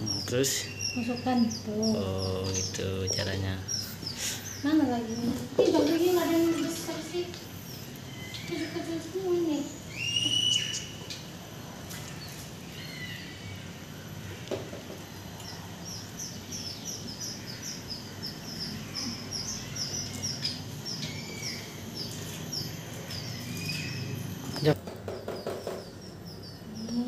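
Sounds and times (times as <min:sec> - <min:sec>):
bird chick begging chirps: 0:00.0 - 0:09.0, 0:09.6 - 0:11.0, 0:15.4 - 0:27.0
higher bird calls: 0:00.0 - 0:11.2, 0:12.0 - 0:27.0.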